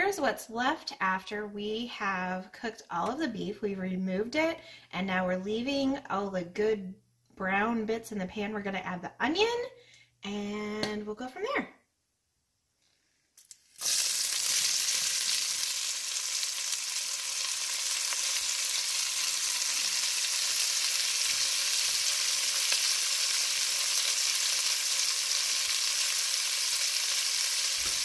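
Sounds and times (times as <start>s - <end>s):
onion sizzling in hot fat: 13.4s - 28.0s.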